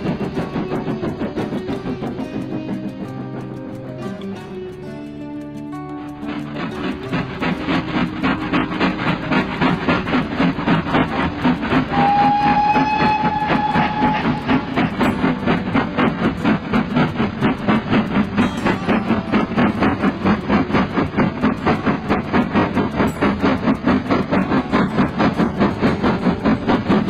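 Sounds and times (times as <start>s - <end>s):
steam locomotive chugging: 0.0s - 27.0s
steam whistle: 6.3s - 27.0s.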